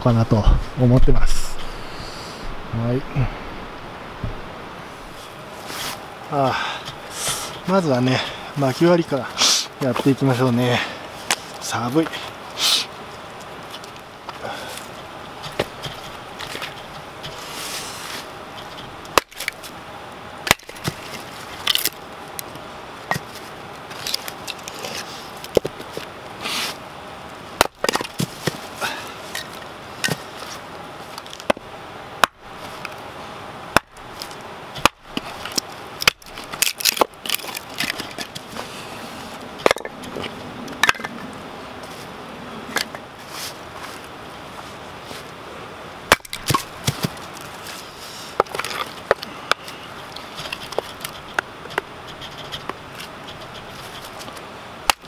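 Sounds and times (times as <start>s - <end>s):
wood cracking as it splits: 18.6s - 19.7s, 20.4s - 22.0s, 33.7s - 38.4s, 46.1s - 47.6s
hatchet chopping wood: 19.1s - 19.6s, 20.4s - 21.0s, 27.6s - 28.6s, 32.2s - 32.4s, 33.7s - 34.0s, 34.8s - 35.3s, 36.0s - 37.9s, 46.1s - 47.2s.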